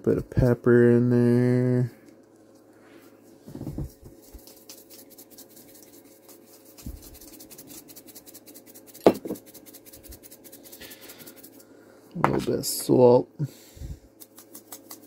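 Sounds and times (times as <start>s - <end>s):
heater humming: 0.0s - 15.0s
pepper shaker ticking: 3.9s - 11.7s, 14.1s - 15.0s.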